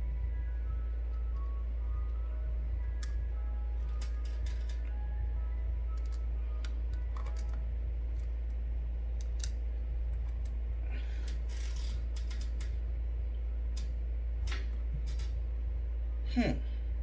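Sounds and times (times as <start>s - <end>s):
steady low hum: 0.0s - 17.0s
screwdriver and screws rustling: 3.8s - 4.9s, 5.9s - 8.6s, 11.2s - 12.8s
sharp small clicks: 11.2s - 12.8s.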